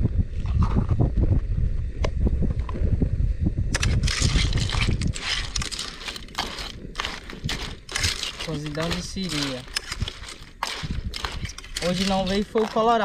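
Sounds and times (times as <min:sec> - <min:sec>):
wind buffeting microphone: 0:00.0 - 0:13.0
spoon stirring crabs in pot: 0:03.8 - 0:13.0.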